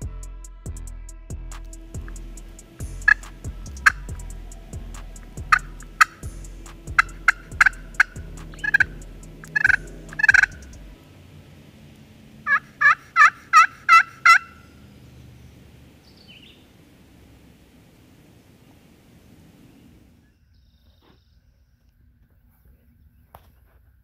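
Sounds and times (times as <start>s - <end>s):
turkey call yelps: 2.5s - 10.8s, 12.4s - 14.9s.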